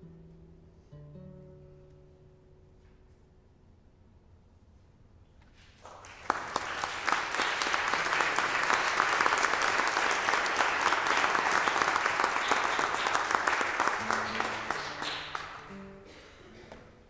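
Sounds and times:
audience applauding: 5.8 - 15.9.

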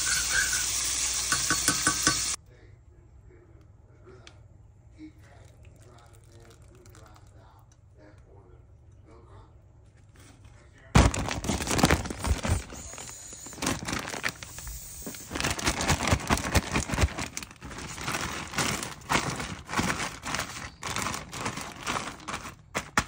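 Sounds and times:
crinkling and rustling: 9.8 - 23.0.

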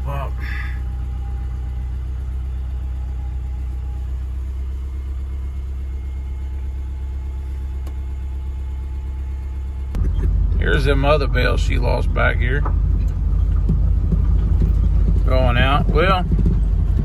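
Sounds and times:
engine idling low rumble: 0.0 - 17.0.

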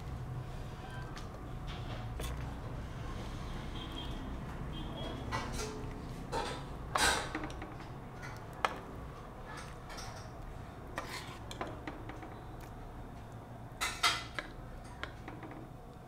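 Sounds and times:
utensil scraping and clinking pot: 9.5 - 11.9.

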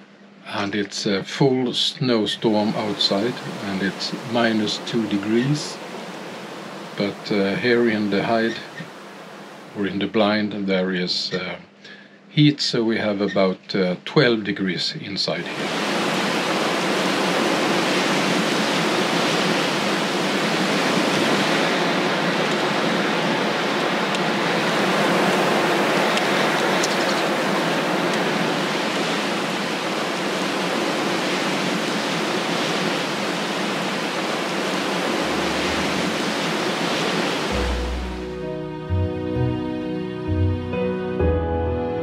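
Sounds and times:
strong snowstorm wind: 2.4 - 9.8, 15.5 - 38.2
low rumble: 35.2 - 36.6.

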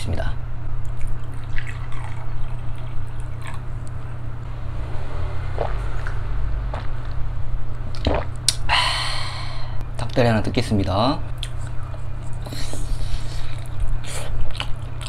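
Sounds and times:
steady low hum: 0.0 - 15.0
liquid pouring into glass: 1.0 - 3.6
swallowing: 6.7 - 7.2, 7.9 - 8.7.

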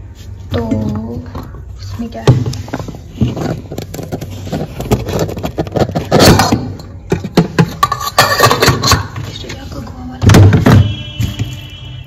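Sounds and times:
plastic bags rustling: 1.9 - 8.6.

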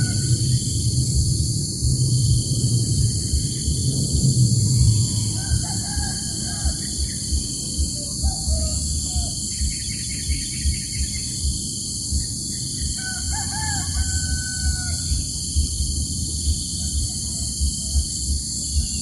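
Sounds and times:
rooster crowing: 0.0 - 0.7, 4.8 - 9.5, 12.8 - 15.6, 16.6 - 18.9
wind rumble on microphone: 0.0 - 19.0.

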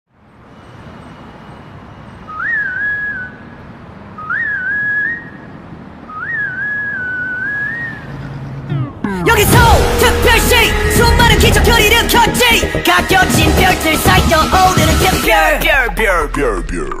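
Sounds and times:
whistled melody: 2.2 - 3.6, 4.2 - 5.5, 6.1 - 8.2
soft hazy backing music: 9.2 - 16.6.

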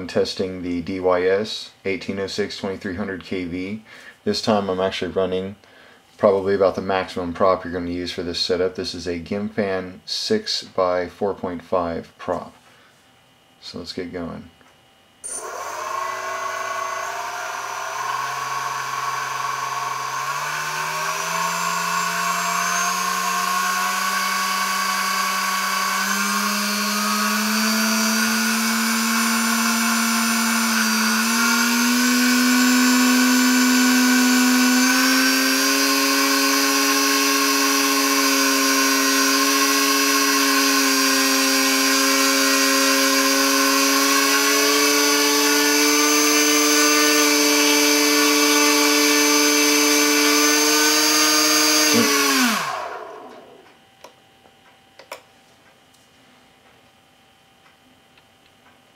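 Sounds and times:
electric motor whining with propeller: 15.2 - 53.6.

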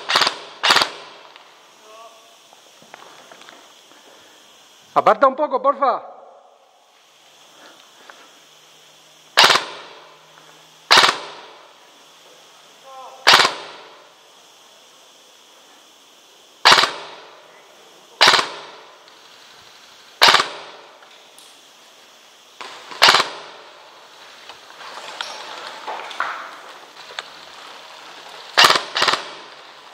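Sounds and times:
airsoft gun shots: 0.0 - 1.3, 9.3 - 10.1, 10.9 - 11.6, 13.2 - 14.0, 16.6 - 17.3, 18.2 - 19.0, 20.2 - 21.0, 22.6 - 23.7, 28.6 - 29.5.

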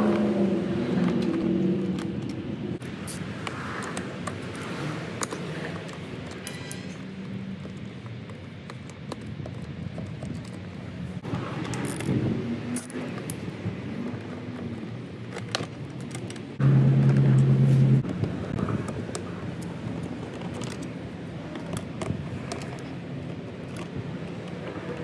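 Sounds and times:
metal hand tools clinking: 6.2 - 7.2
loud low drone: 16.6 - 18.0.

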